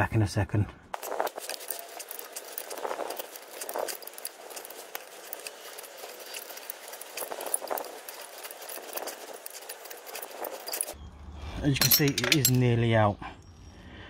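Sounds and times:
light metal tool clinks: 0:11.8 - 0:12.9.

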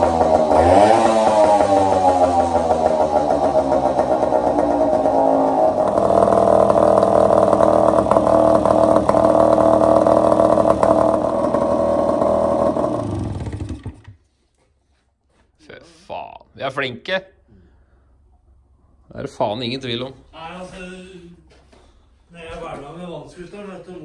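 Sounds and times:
outboard motor running: 0:00.0 - 0:14.2.

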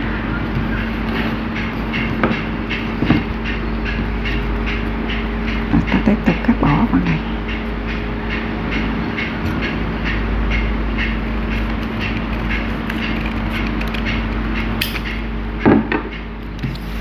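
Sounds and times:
steady background noise pulsing: 0:00.0 - 0:17.0
scissors cutting paper: 0:11.5 - 0:14.5.

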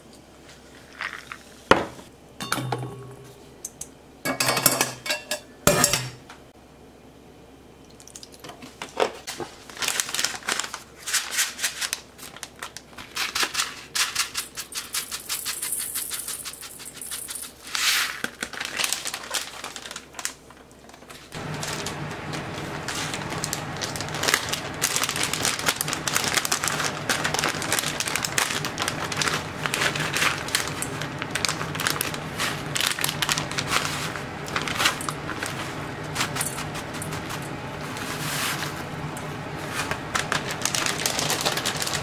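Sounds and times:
metal bowl and utensils clinking: 0:02.4 - 0:06.2.

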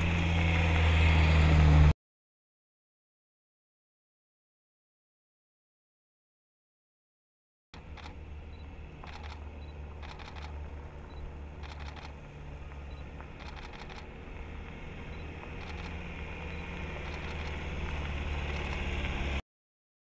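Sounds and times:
car driving on dirt road: 0:00.0 - 0:02.0, 0:07.8 - 0:19.4.

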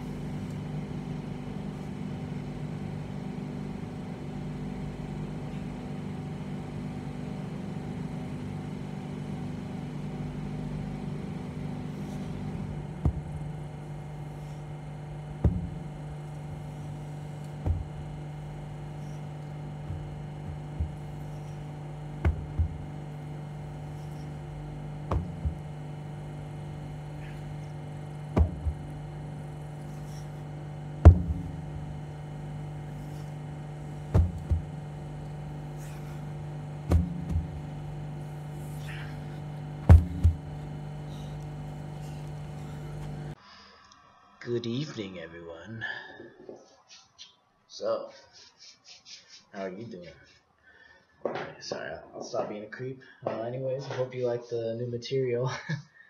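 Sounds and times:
steady low hum: 0:00.0 - 0:45.3
heavy tyre thudding on grass: 0:12.0 - 0:43.1.

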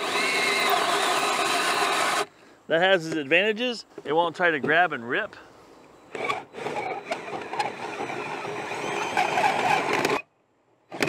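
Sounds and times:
drill with hole saw grinding: 0:00.0 - 0:02.3, 0:06.1 - 0:10.3.

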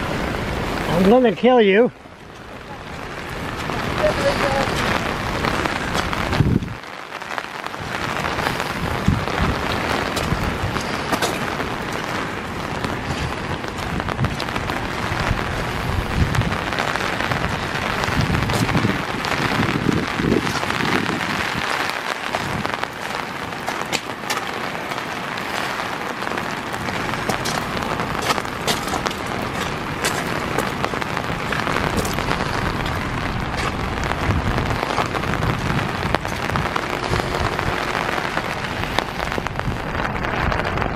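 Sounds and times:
hiss of rushing water: 0:00.0 - 0:40.9
low rumbles: 0:07.8 - 0:40.9.

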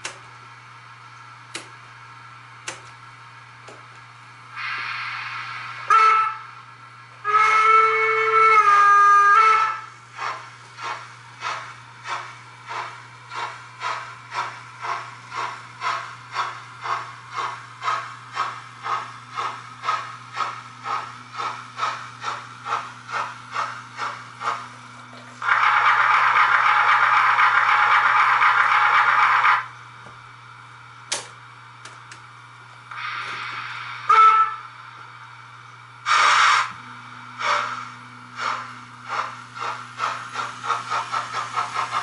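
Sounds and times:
hiss of steam: 0:04.5 - 0:06.6, 0:32.9 - 0:34.5, 0:36.1 - 0:36.7, 0:37.4 - 0:42.0
model locomotive whistle: 0:05.8 - 0:06.6, 0:07.2 - 0:09.9, 0:25.4 - 0:29.7, 0:34.0 - 0:34.8, 0:36.1 - 0:36.8
locomotive chuffing: 0:07.2 - 0:29.7, 0:36.0 - 0:36.7, 0:37.4 - 0:42.0.

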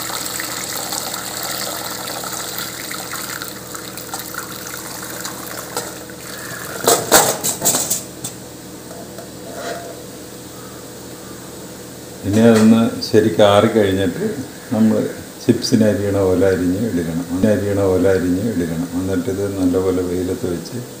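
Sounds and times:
water pouring through a colander: 0:00.0 - 0:06.8.

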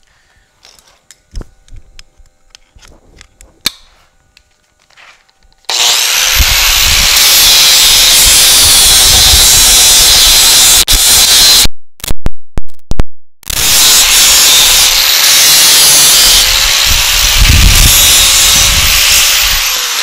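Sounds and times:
electric power tool on metal: 0:05.7 - 0:11.7, 0:13.5 - 0:20.0.

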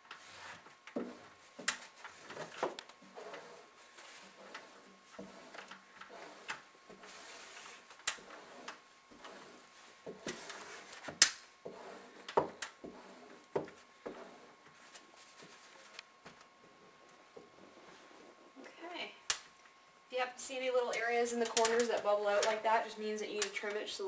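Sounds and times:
card rubbing over window film: 0:00.1 - 0:16.0.

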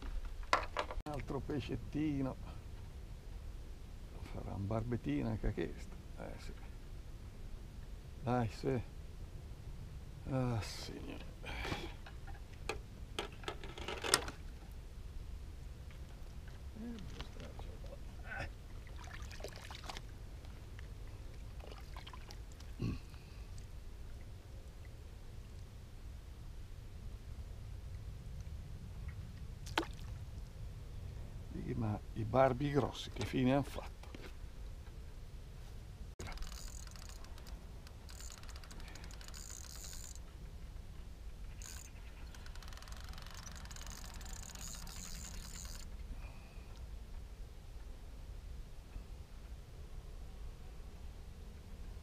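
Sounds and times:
river water splashing and trickling: 0:15.8 - 0:16.8, 0:17.5 - 0:25.7, 0:29.0 - 0:30.6, 0:41.4 - 0:46.0
wind rumble on microphone: 0:23.8 - 0:32.4
fishing reel cranking: 0:36.2 - 0:40.2, 0:41.6 - 0:45.9.

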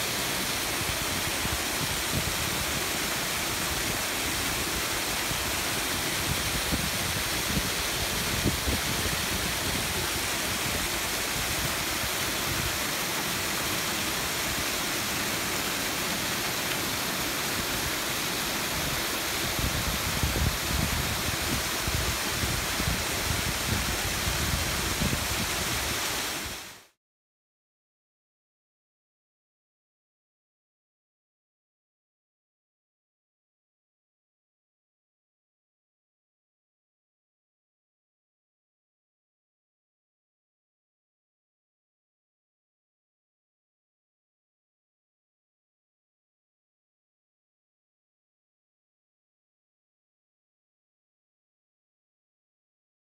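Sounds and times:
water rushing over sluice gate: 0:00.0 - 0:27.0.

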